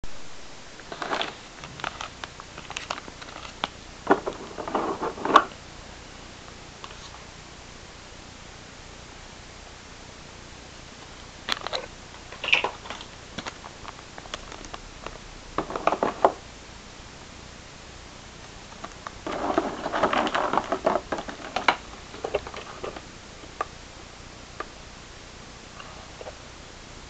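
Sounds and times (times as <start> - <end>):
plastic wrapping crinkling: 0.8 - 5.6, 11.1 - 16.4, 18.7 - 23.1.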